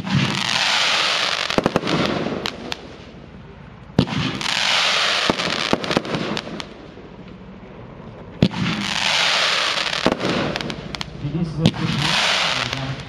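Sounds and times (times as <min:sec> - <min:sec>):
firework hiss: 0:00.0 - 0:03.1, 0:04.0 - 0:06.8, 0:08.4 - 0:13.0
firework sharp cracks: 0:00.0 - 0:03.2, 0:03.9 - 0:07.0, 0:08.4 - 0:13.0.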